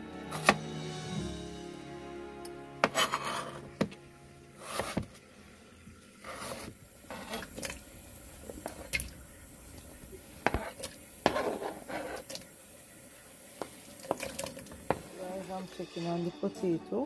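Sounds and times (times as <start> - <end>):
potatoes dropping into water: 13.6 - 15.1.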